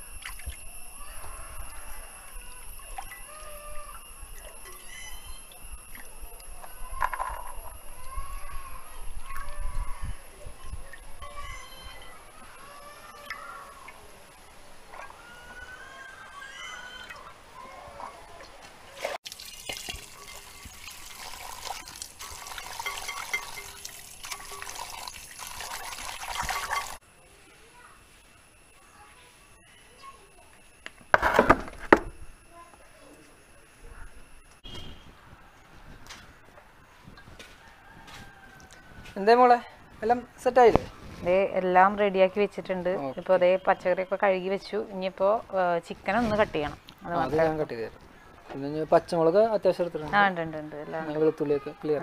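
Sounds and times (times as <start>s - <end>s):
tap water running into pot: 19.2s - 27.0s.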